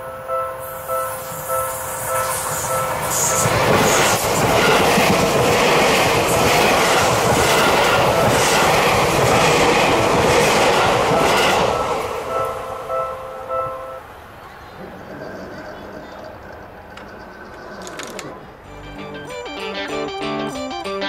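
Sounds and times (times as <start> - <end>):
train passing with rail rumble: 0.0 - 19.8
level crossing bell ringing: 11.7 - 14.1.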